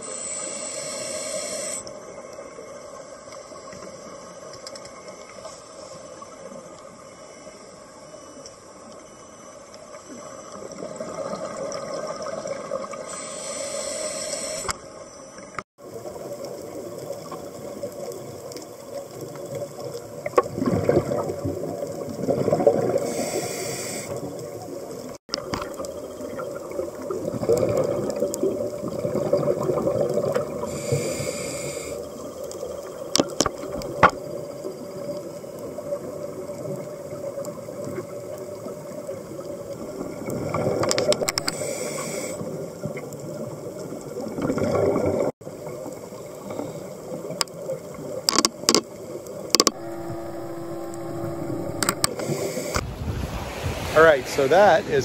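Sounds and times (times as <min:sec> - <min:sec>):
scuba regulator hissing inhale: 0:00.0 - 0:01.9, 0:13.0 - 0:14.8, 0:23.0 - 0:24.4, 0:30.6 - 0:32.1, 0:41.3 - 0:42.6, 0:50.9 - 0:52.8
exhaled bubbles rushing: 0:20.4 - 0:23.1, 0:26.3 - 0:30.7, 0:44.1 - 0:45.8
sharp clicks: 0:40.9 - 0:41.6, 0:49.5 - 0:52.8.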